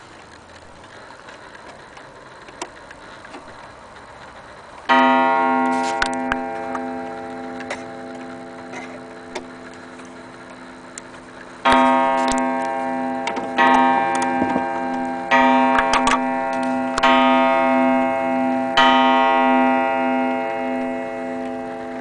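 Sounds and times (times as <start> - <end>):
clock pendulum ticking: 2.5 - 22.0
wall clock striking: 4.9 - 11.0, 11.6 - 22.0.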